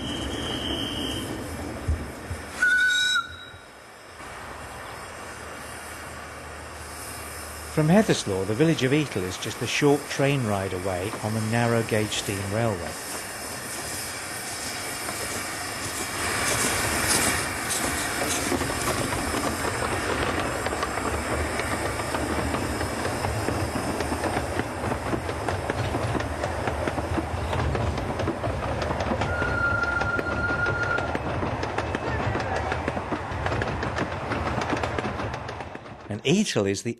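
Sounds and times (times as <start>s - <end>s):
steam train rumble and hiss: 0.0s - 36.5s
wheels clicking over rail joints: 14.8s - 36.4s.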